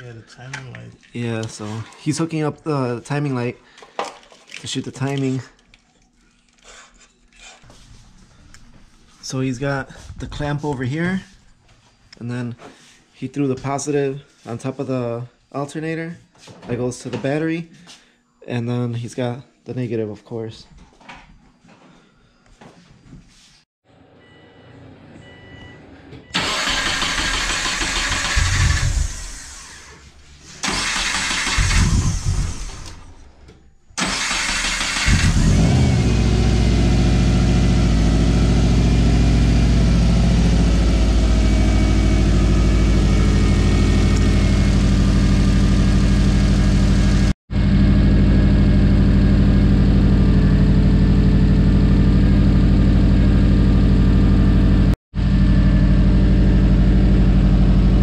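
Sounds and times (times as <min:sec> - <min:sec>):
car engine cranking: 0:26.3 - 0:29.9, 0:30.6 - 0:33.2, 0:34.0 - 0:36.8.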